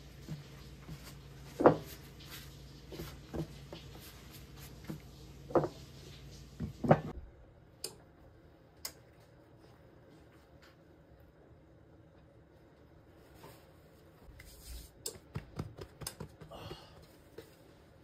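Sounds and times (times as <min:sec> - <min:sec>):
objects knocking and thudding: 0:00.3 - 0:02.0.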